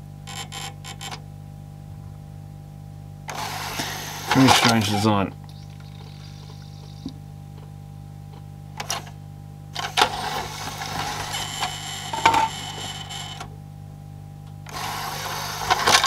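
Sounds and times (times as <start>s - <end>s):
cd tray motor whirring: 3.2s - 13.6s, 14.5s - 16.0s
cd tray mechanism clack: 3.3s - 5.0s, 9.8s - 13.5s, 14.7s - 16.0s.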